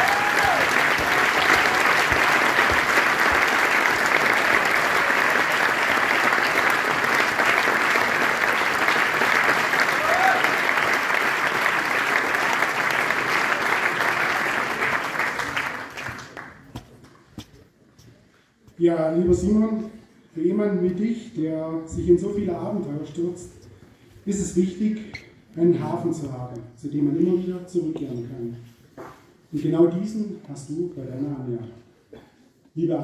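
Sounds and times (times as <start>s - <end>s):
audience applauding: 0.0s - 16.8s.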